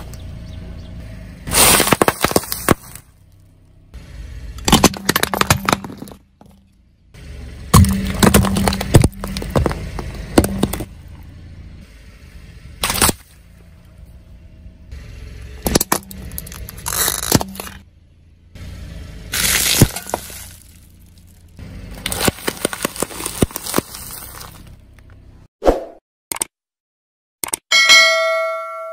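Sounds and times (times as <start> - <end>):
tyre crushing objects: 1.5 - 3.1, 4.6 - 6.6, 7.7 - 11.0, 12.8 - 13.3, 19.4 - 24.8.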